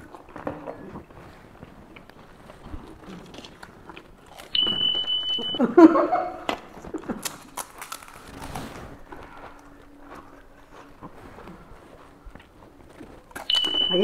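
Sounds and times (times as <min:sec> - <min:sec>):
crunching of crisp snacks: 0:01.8 - 0:05.6, 0:06.6 - 0:13.9
high electronic beep: 0:04.6 - 0:05.6, 0:13.5 - 0:14.0.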